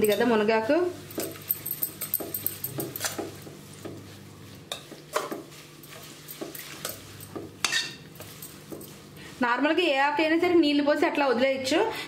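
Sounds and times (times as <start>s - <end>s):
spoon clinking on pot: 1.1s - 3.4s, 4.7s - 9.0s
spoon scraping steel pot: 4.6s - 9.1s.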